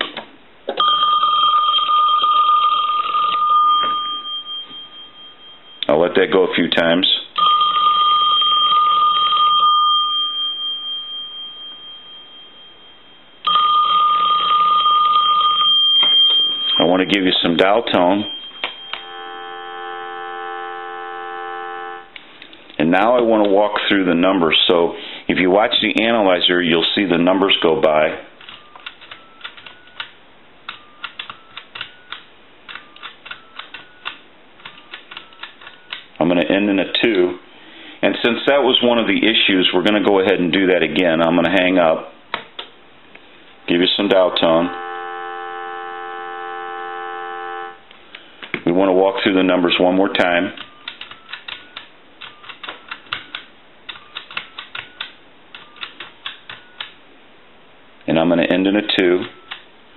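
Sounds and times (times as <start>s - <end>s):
telephone bell ringing: 0.8s - 5.8s, 7.4s - 22.1s, 44.4s - 47.9s
touch-tone beeps: 3.0s - 5.9s, 7.4s - 17.2s, 18.0s - 22.1s, 28.5s - 30.1s, 30.7s - 34.2s.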